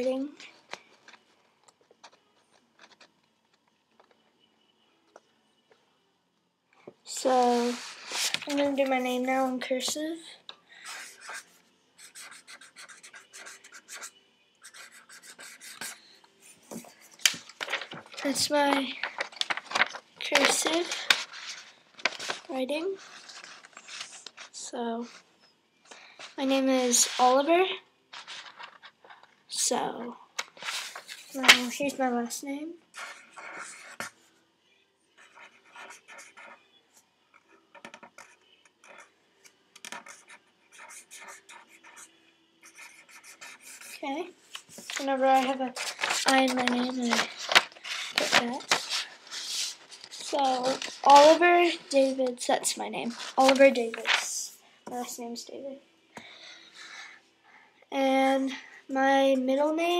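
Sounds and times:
pen scratching on paper: 10.8s - 17.0s, 33.0s - 34.2s, 35.2s - 36.6s, 37.4s - 39.1s, 39.9s - 44.0s.

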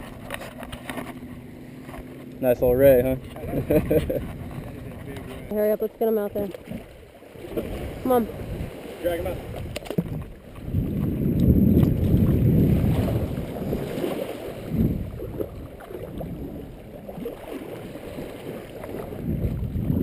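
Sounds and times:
wind on microphone: 2.4s - 5.6s, 6.3s - 20.0s
small waves washing over sand: 6.4s - 20.0s.

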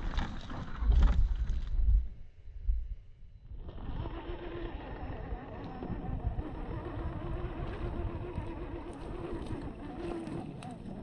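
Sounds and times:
electric motor whining: 3.6s - 11.0s.

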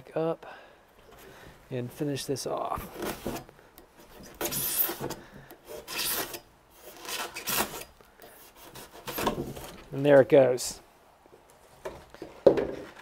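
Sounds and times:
knife scraping through foam board: 2.9s - 9.8s.

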